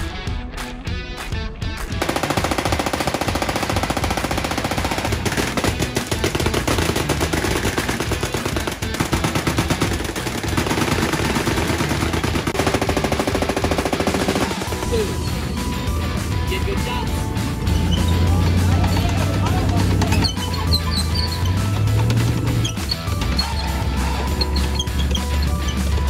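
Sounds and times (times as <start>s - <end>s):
machine guns firing bursts: 2.0s - 15.1s.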